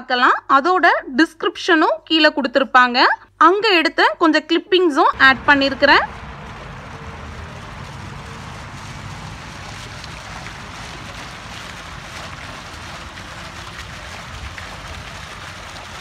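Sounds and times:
fountain water splashing: 5.1 - 16.0
low rumble: 5.2 - 16.0.

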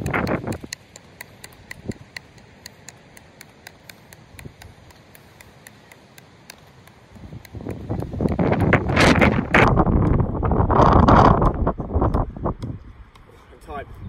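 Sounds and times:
hockey stick tapping ball: 0.0 - 10.2.

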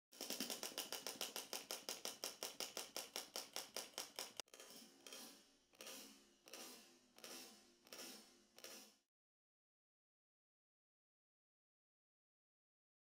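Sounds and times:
chattering teeth toy clacking: 0.2 - 4.4.

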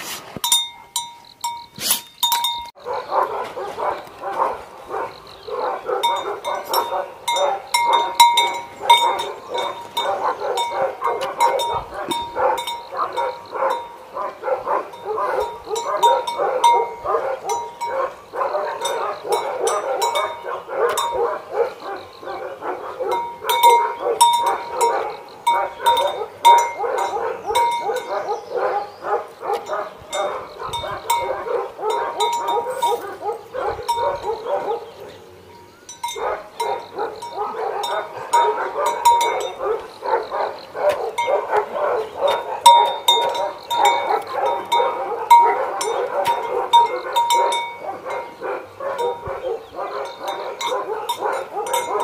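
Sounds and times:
collar bell ringing: 0.4 - 2.8, 6.0 - 14.0, 14.9 - 18.1, 18.7 - 21.3, 23.0 - 28.4, 29.7 - 33.1, 33.9 - 34.5, 35.6 - 39.8, 42.2 - 49.3, 50.0 - 52.0
dogs barking: 2.7 - 52.0.

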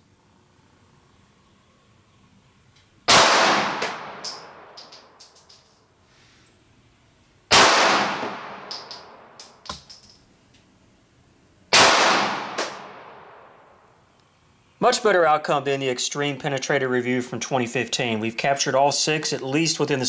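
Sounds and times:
pistol shots with echo: 3.1 - 4.7, 7.5 - 9.2, 11.7 - 13.5
brass casings clinking: 4.2 - 5.9, 8.6 - 10.3.

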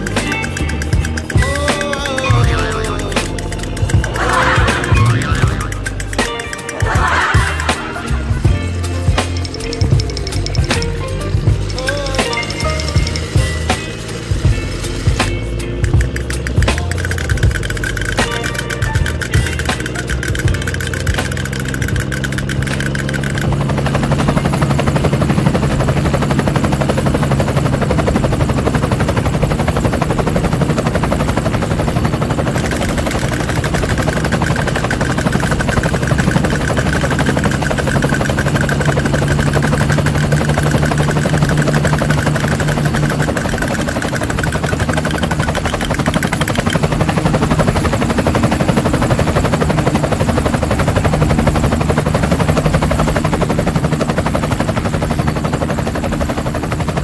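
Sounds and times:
toy helicopter motor rattling: 0.0 - 57.0.

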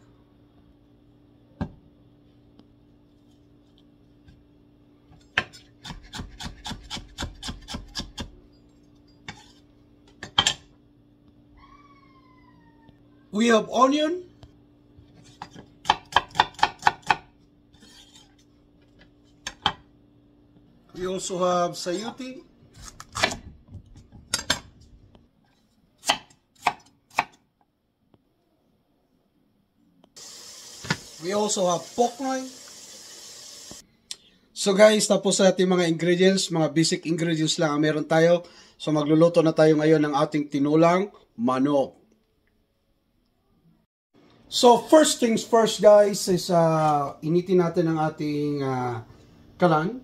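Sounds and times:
knife chopping on wooden board: 5.3 - 8.4, 15.4 - 17.3, 22.8 - 24.7, 26.0 - 27.4.

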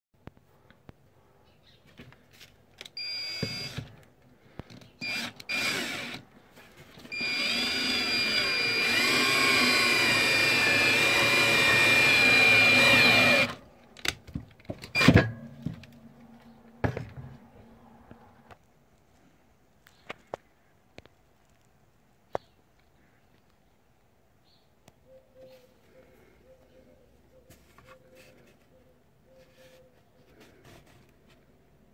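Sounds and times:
power drill driving screw into wood: 3.0 - 3.9, 5.0 - 6.2, 7.1 - 13.6, 14.9 - 15.3.

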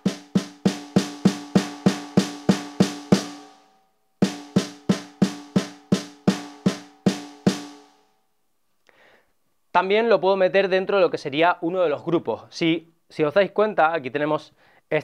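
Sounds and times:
electronic drum pad hits: 0.0 - 3.6, 4.2 - 7.9.

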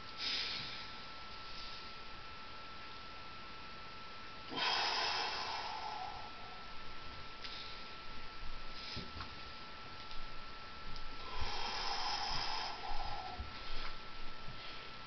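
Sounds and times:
man exhaling forcefully: 4.5 - 6.6, 11.2 - 13.9.

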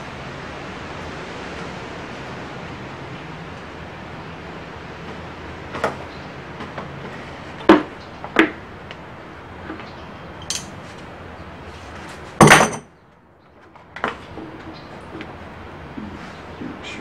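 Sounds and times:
metallic clicks: 10.4 - 10.8
metal clatter: 10.4 - 10.9, 12.4 - 12.9
pliers and metal parts clinking: 10.4 - 11.0, 12.4 - 12.8.

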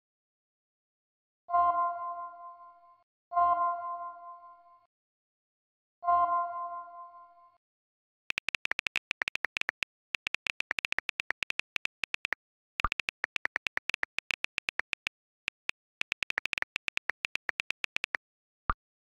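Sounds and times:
message sent sound: 8.3 - 18.2
phone keyboard clicks: 8.3 - 18.2.

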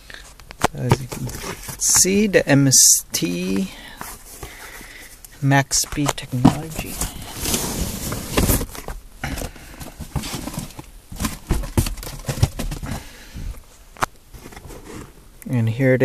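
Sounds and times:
cardboard rustling and scraping: 0.2 - 15.3
knocks and bumps of boxes: 0.6 - 2.4, 5.8 - 13.5.

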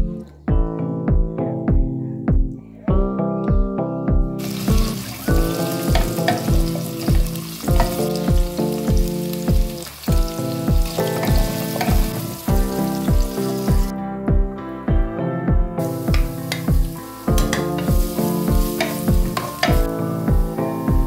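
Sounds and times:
music with steady beat: 0.0 - 21.0
vegetables sizzling in oil: 4.4 - 13.9, 15.8 - 21.0.

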